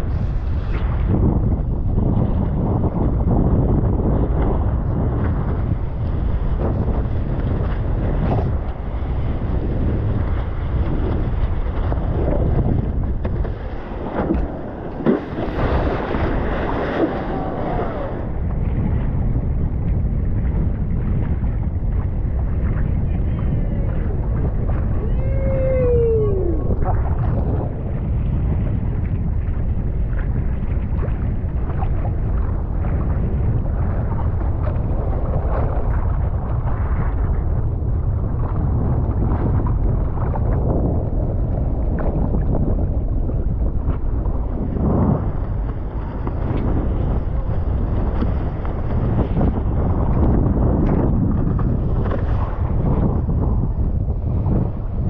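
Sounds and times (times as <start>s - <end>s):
water rushing and sloshing: 0.0s - 55.0s
wind buffeting microphone: 0.0s - 55.0s
water rushing and splashing: 5.4s - 19.0s.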